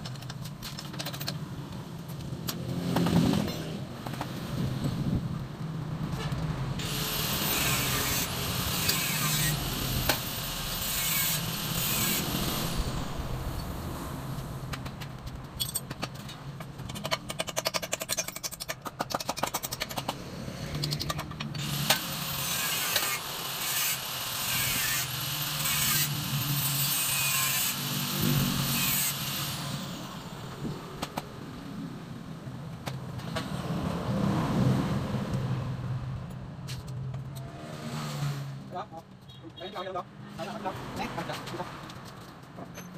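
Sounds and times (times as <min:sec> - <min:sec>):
rasping strokes on metal: 0:06.8 - 0:13.0, 0:21.6 - 0:29.7.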